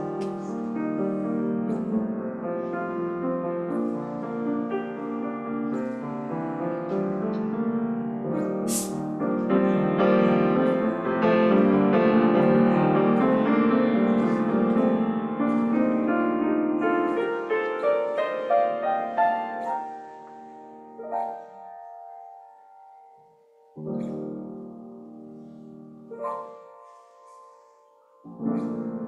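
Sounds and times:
slow piano piece: 0.0s - 29.0s
brief hiss: 8.7s - 9.0s.

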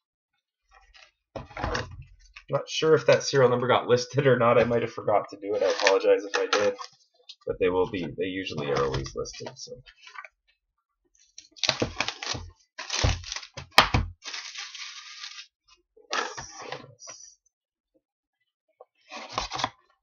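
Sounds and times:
packaging rustling and tearing: 11.4s - 13.6s, 14.2s - 15.5s.

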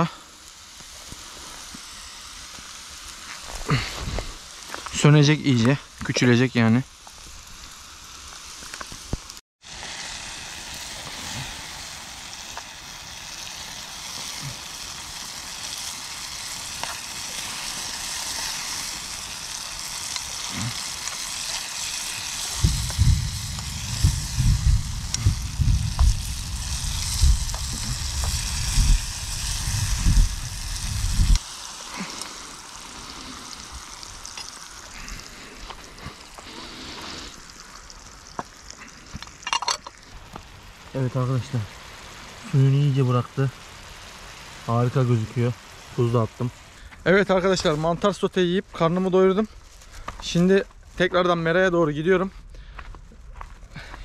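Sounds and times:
mushrooms sizzling in frying pan: 0.0s - 51.2s
low rumbling thumps: 22.6s - 31.4s.

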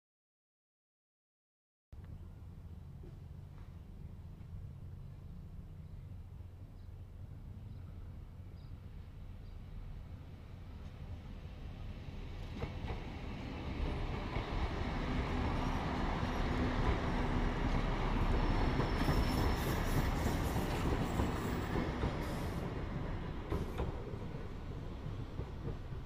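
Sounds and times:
passenger train rumbling past: 2.1s - 26.0s
wheels screeching on rails: 12.6s - 26.0s.

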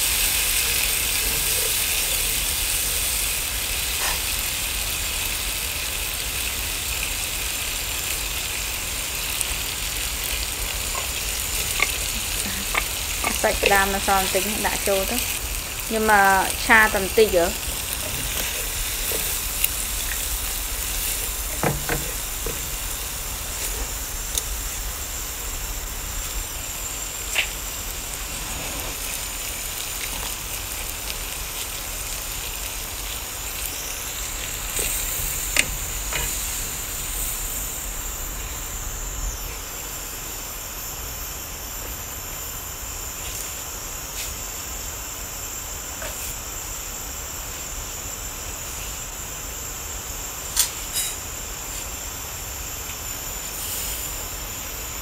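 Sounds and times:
liquid bubbling in pan: 0.0s - 39.0s
food sizzling in oil: 0.0s - 55.0s.

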